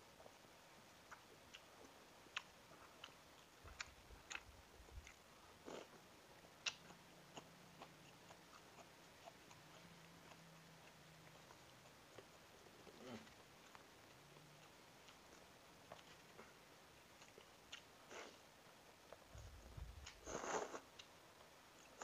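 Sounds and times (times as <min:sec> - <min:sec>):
mouth clicks and chewing: 0:02.3 - 0:06.0, 0:06.6 - 0:12.4, 0:17.2 - 0:18.4.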